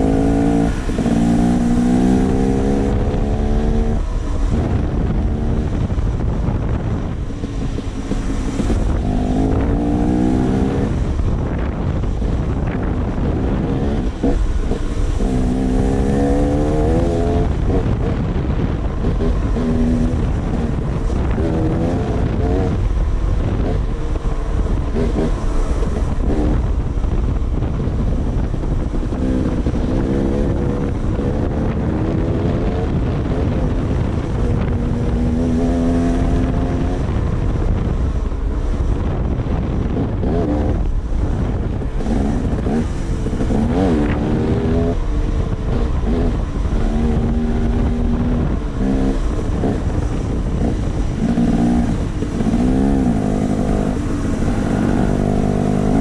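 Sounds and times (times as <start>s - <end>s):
wind buffeting microphone: 0.0s - 56.0s
dirt bike engine revving: 42.0s - 45.1s, 45.7s - 56.0s.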